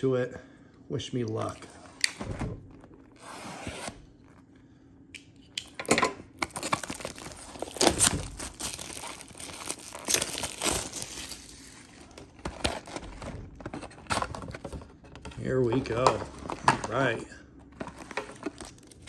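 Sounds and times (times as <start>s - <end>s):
plastic shrink wrap tearing: 6.4s - 13.1s.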